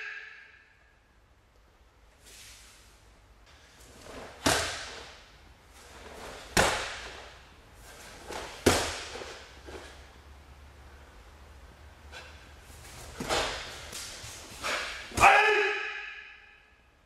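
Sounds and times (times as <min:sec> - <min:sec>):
bare foot stamping on mats: 0:06.1 - 0:07.4, 0:08.2 - 0:10.0.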